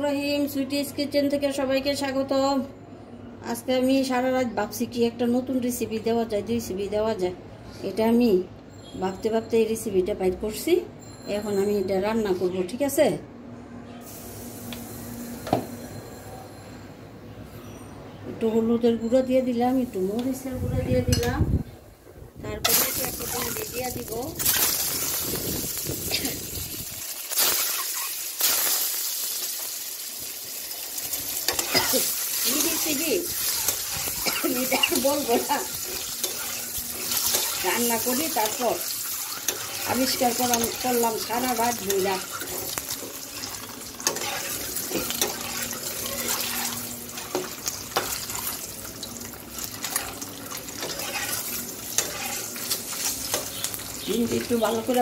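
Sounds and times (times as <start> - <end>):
eggs sizzling in hot oil: 22.7 - 55.0
metal spatula scraping a pan: 31.4 - 48.3, 49.8 - 53.6.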